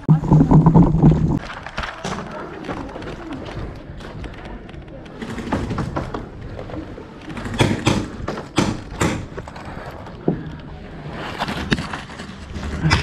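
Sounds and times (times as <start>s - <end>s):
sharp knocks: 7.5s - 9.4s.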